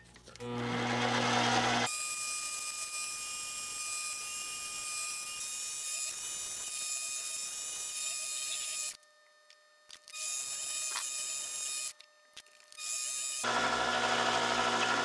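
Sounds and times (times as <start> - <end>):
lathe whining: 0.4 - 1.9, 13.4 - 15.0.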